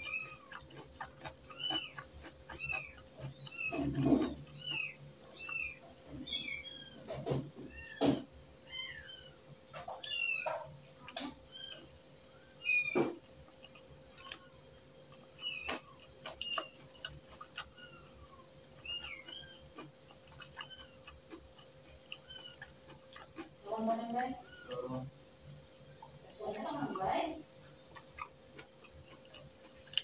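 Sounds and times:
chewing and lip-smacking: 0.0s - 6.4s, 12.6s - 23.7s, 24.4s - 30.0s
crickets chirring: 0.0s - 30.0s.

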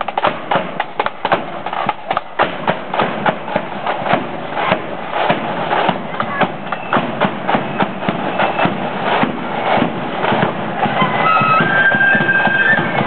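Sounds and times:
marching drums beating: 0.0s - 13.0s
high wind instrument melody: 10.8s - 13.0s.

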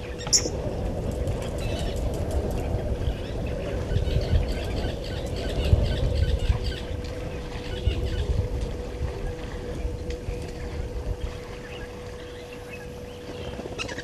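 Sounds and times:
faint steady hum: 0.0s - 14.0s
low uneven rumble: 0.0s - 14.0s.

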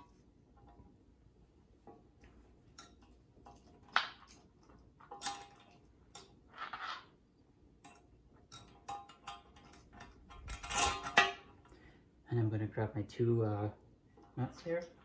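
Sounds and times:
metal scraping on porcelain: 6.5s - 7.2s.

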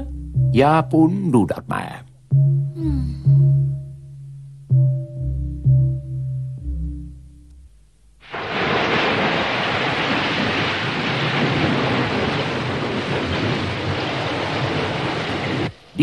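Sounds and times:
heavy rain: 8.2s - 16.0s
surf crashing: 8.2s - 16.0s
wind: 8.2s - 16.0s.

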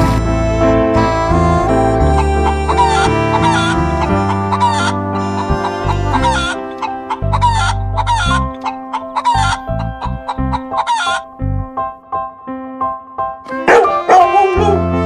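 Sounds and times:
background music with bass: 0.0s - 15.0s
hen clucking: 2.1s - 11.3s, 13.7s - 14.8s.

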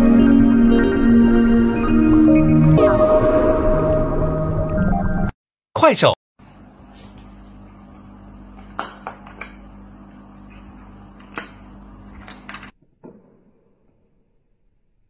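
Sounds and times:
low aquarium hum: 6.4s - 12.7s.

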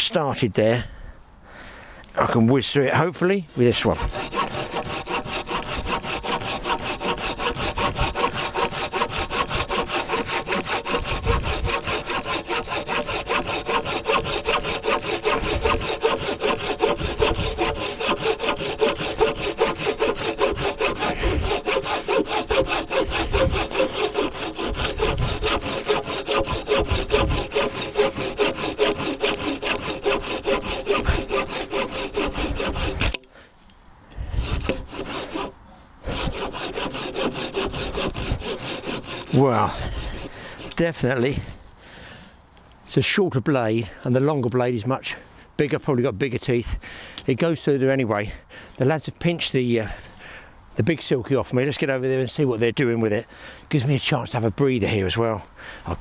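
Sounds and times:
hand saw cutting a log: 3.5s - 33.3s, 34.3s - 41.5s.

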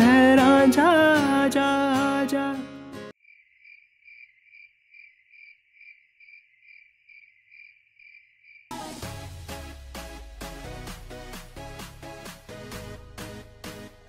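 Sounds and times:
crickets chirping: 3.2s - 8.7s
electronic dance music: 8.7s - 14.0s.

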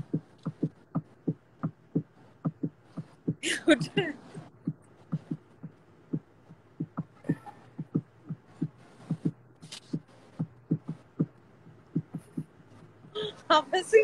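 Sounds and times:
person chuckling breathily: 3.4s - 4.1s.

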